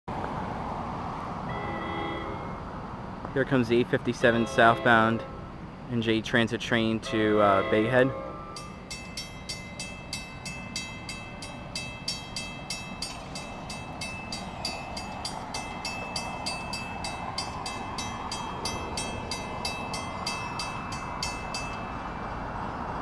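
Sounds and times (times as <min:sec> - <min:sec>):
train rumble: 0:01.4 - 0:23.0
crossing bell ringing: 0:01.5 - 0:02.6, 0:04.2 - 0:05.6, 0:07.0 - 0:22.3.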